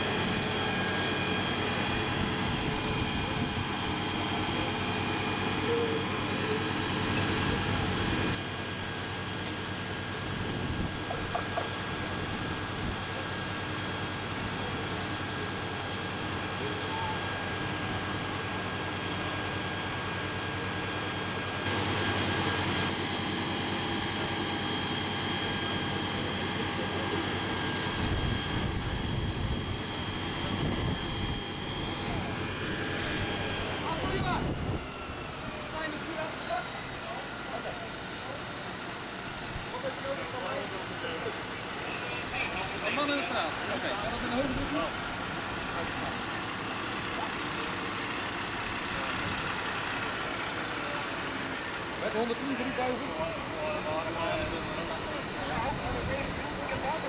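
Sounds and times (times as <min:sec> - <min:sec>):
water pump droning: 0:00.0 - 0:39.2
high pump whine: 0:00.0 - 0:57.0.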